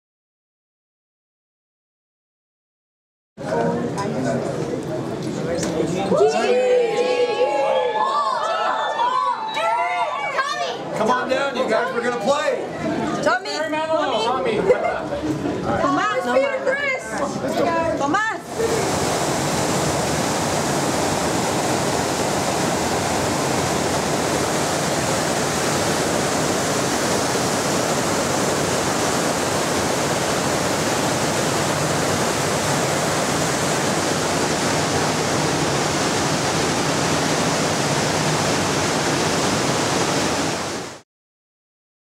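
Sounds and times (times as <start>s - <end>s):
churning seawater rushing: 18.4s - 41.0s.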